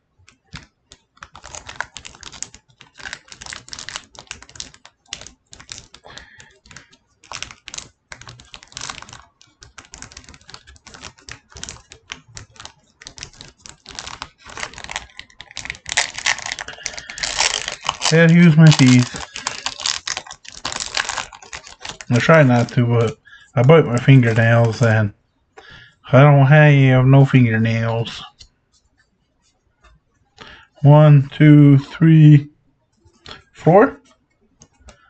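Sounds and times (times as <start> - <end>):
foil wrapper crinkling: 0.5 - 24.9
wrapper tearing: 1.2 - 23.1, 23.8 - 24.8.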